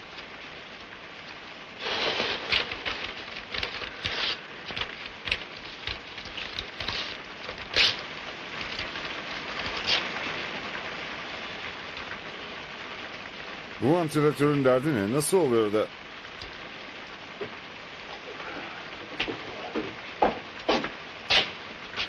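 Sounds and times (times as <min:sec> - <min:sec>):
steady rain falling: 0:00.0 - 0:22.0
paper crackling and rustling: 0:01.8 - 0:10.7.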